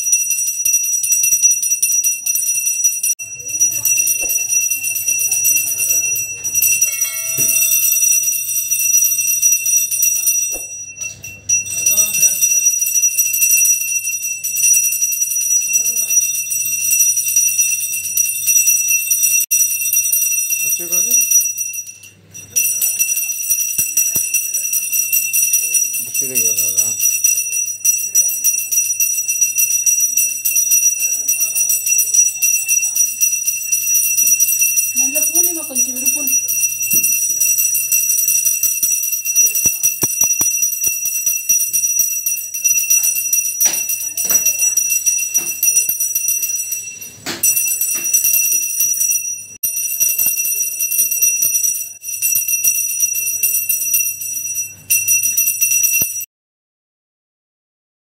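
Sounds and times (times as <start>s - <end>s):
hand bell ringing rapidly: 0.0s - 56.3s
faint voices: 3.2s - 8.4s.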